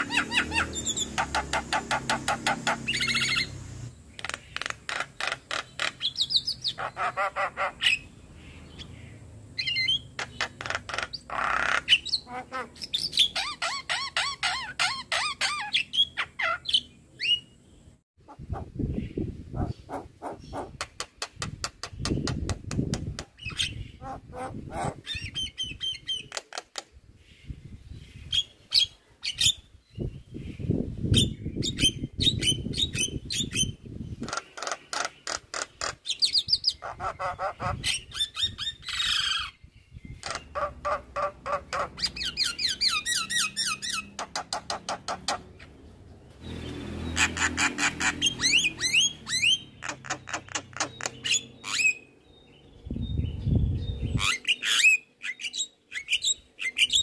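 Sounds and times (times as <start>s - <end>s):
bird clicking and chattering song: 0.0s - 7.1s, 9.6s - 12.2s, 19.6s - 23.8s, 25.0s - 27.0s, 31.2s - 39.4s, 40.1s - 45.8s, 46.4s - 52.0s.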